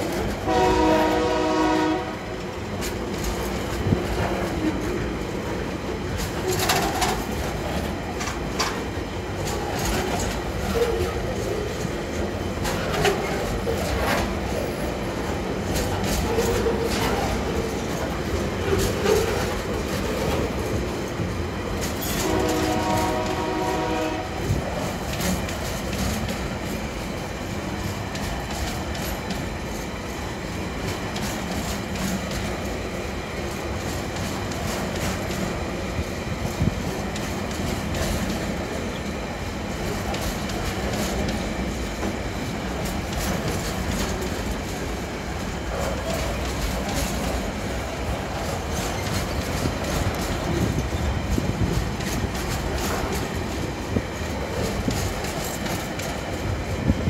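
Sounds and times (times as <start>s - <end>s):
freight train wagons rumbling: 0.0s - 57.0s
wheels clacking over rail joints: 0.0s - 57.0s
train horn: 0.4s - 2.4s, 22.0s - 24.6s.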